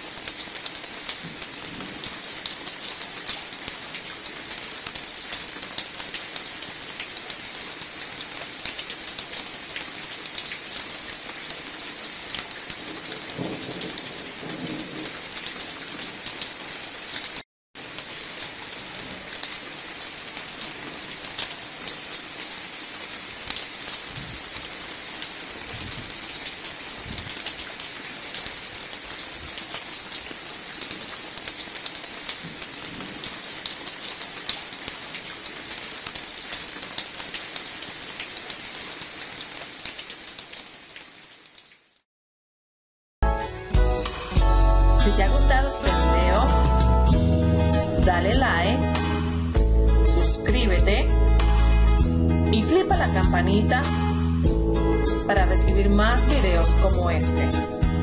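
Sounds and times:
rain on leaves: 0:00.0 - 0:42.1.

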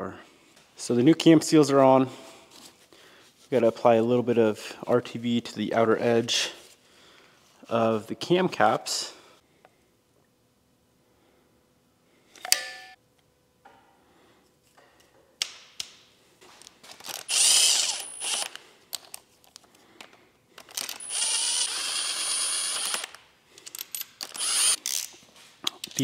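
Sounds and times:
electric screwdriver running: 0:17.3 - 0:18.6, 0:20.9 - 0:23.2, 0:24.3 - 0:25.0
metal parts clicking and clinking: 0:17.9 - 0:21.1, 0:22.9 - 0:26.0.

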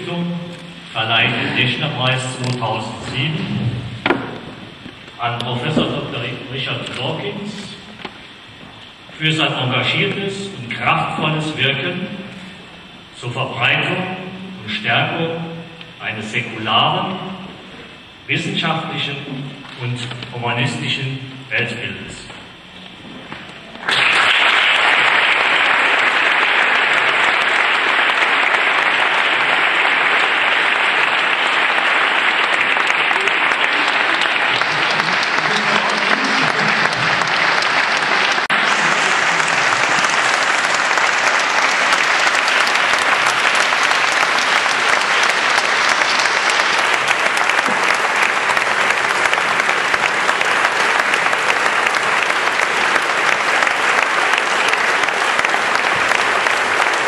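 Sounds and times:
large audience applauding: 0:23.4 - 0:57.0.

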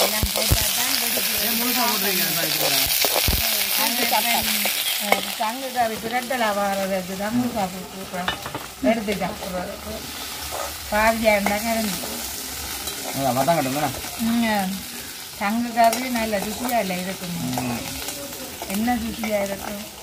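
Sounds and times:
woman talking: 0:00.0 - 0:02.0, 0:03.3 - 0:10.0, 0:14.2 - 0:14.8, 0:15.4 - 0:20.0
seasonings sizzling in oil: 0:00.0 - 0:20.0
metal spatula scraping pan: 0:04.4 - 0:05.4.

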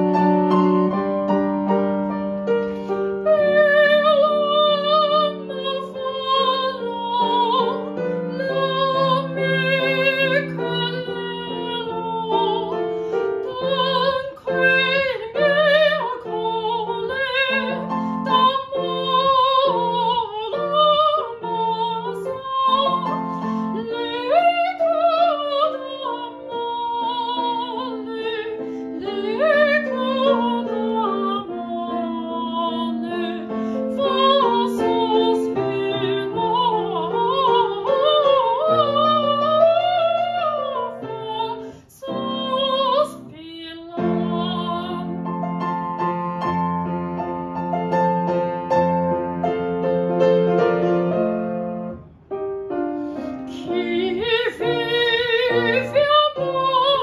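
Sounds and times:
piano accompaniment: 0:00.0 - 0:57.0
woman singing operatically: 0:03.2 - 0:12.8, 0:13.4 - 0:45.2, 0:53.5 - 0:57.0.

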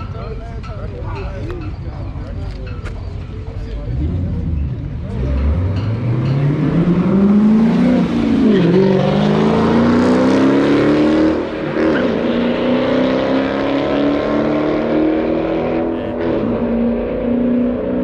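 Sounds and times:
car engine at full throttle: 0:03.8 - 0:18.0.

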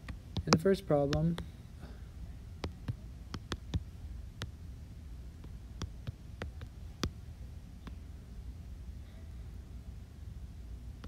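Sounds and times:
taps on touchscreen keyboard: 0:00.0 - 0:01.5, 0:02.6 - 0:04.6, 0:05.4 - 0:07.2
low steady hum: 0:00.0 - 0:11.0.

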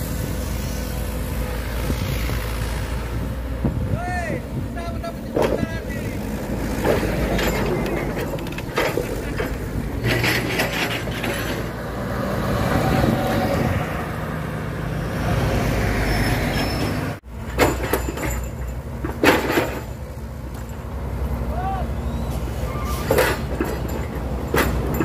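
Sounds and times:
heavy truck driving past: 0:00.0 - 0:04.8, 0:06.0 - 0:17.6
heavy diesel engines running: 0:00.0 - 0:25.0
logs landing with knocks: 0:05.3 - 0:05.9, 0:17.5 - 0:20.0.

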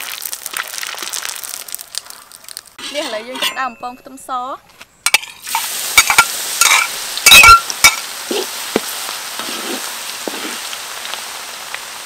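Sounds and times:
spoon knocking and scraping: 0:05.1 - 0:08.5
oil sizzling in a wok: 0:05.1 - 0:12.0.

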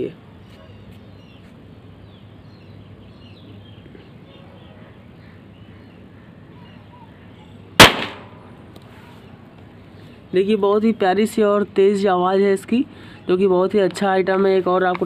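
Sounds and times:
firecracker bang: 0:07.8 - 0:08.5.

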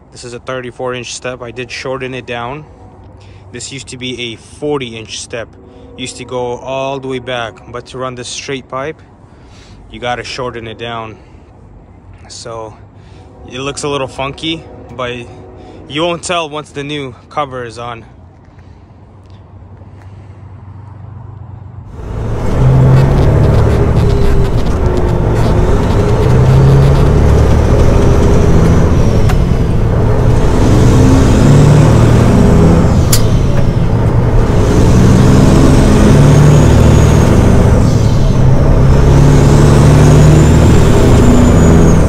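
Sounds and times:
diesel truck engine: 0:00.0 - 0:42.0.

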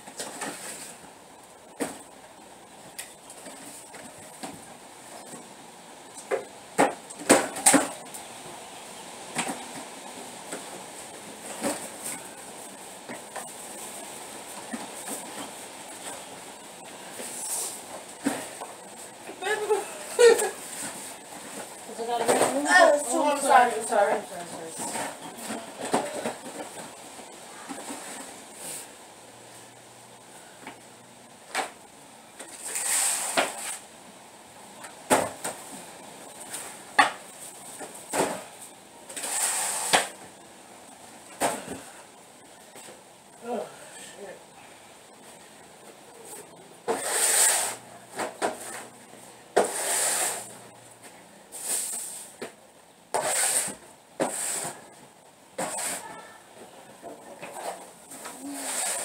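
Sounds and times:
knocks and thuds of goods: 0:06.3 - 0:08.1, 0:09.3 - 0:16.2, 0:34.9 - 0:36.0, 0:36.9 - 0:39.2
rustling hiss: 0:07.6 - 0:31.4, 0:32.4 - 0:34.0, 0:35.7 - 0:40.2, 0:48.6 - 0:52.5
rough rubbing strokes: 0:32.6 - 0:33.8, 0:39.2 - 0:39.9, 0:46.9 - 0:47.8, 0:49.6 - 0:50.5, 0:53.2 - 0:54.8, 0:58.4 - 0:59.0.

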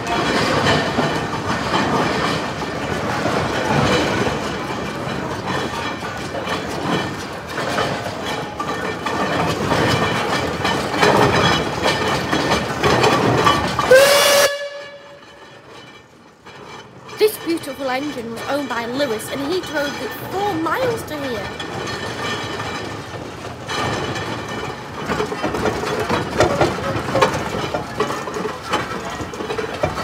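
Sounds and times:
steam roller engine working: 0:00.0 - 0:30.0
steam whistle blast: 0:13.9 - 0:15.1.

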